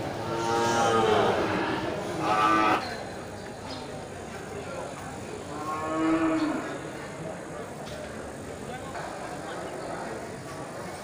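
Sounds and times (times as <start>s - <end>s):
cattle mooing: 0.2s - 2.8s.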